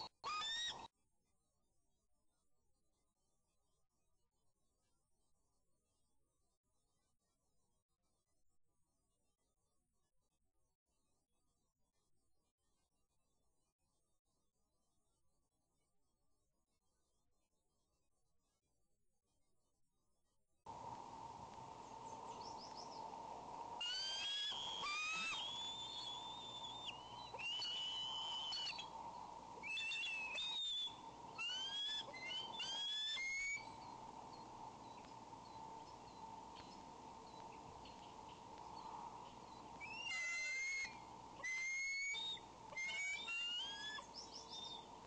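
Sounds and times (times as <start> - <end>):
eagles whistled calls: 0.0 - 0.9, 23.8 - 34.0, 38.8 - 44.9
electrical hum: 20.7 - 45.0.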